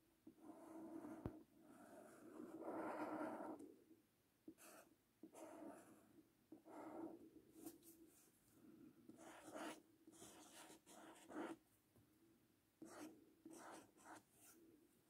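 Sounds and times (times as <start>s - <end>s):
pen strokes on paper: 0.4s - 3.6s, 4.6s - 8.3s, 9.1s - 11.6s, 12.8s - 14.6s.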